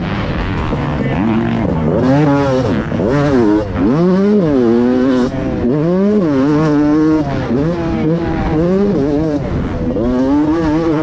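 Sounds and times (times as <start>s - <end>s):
motocross bike engine revving: 0.0s - 11.0s.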